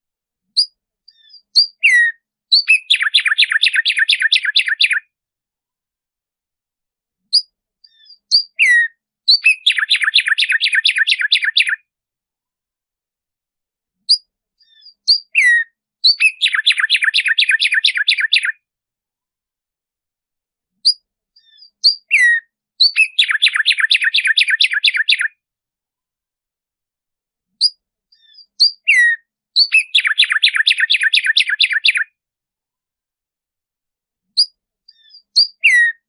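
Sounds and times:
sparrow singing: 0:00.5 - 0:05.1, 0:07.2 - 0:11.8, 0:14.0 - 0:18.6, 0:20.8 - 0:25.4, 0:27.6 - 0:32.1, 0:34.4 - 0:36.0.

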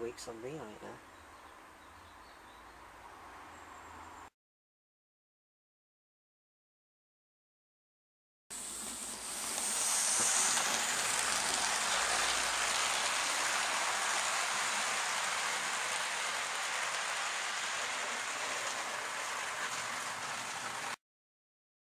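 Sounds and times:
model train running on track: 0:08.6 - 0:21.0.

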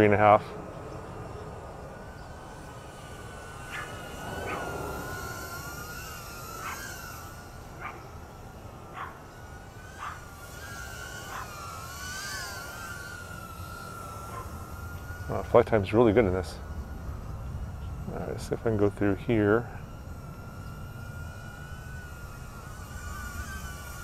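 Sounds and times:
drone propellers whining: 0:00.0 - 0:24.0
short sharp motor blips: 0:00.9 - 0:15.6, 0:19.9 - 0:24.0.

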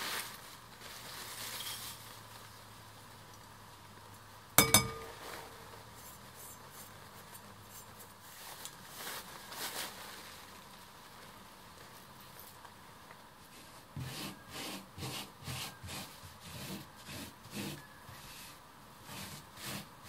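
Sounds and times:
metal spoon clinking on glass bowl: 0:04.6 - 0:05.2
scraping crust off cloth: 0:13.5 - 0:20.0.

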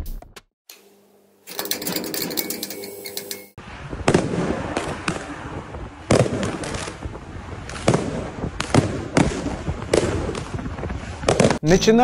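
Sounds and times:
fireworks bangs: 0:03.6 - 0:11.6.

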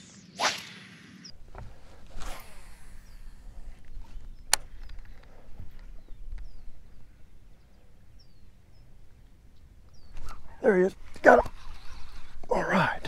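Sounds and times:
chirping bird calls: 0:02.8 - 0:12.7.

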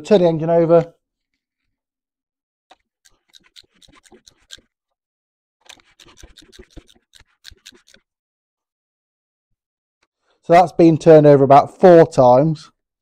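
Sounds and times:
faint rapid clicking: 0:05.6 - 0:08.0.

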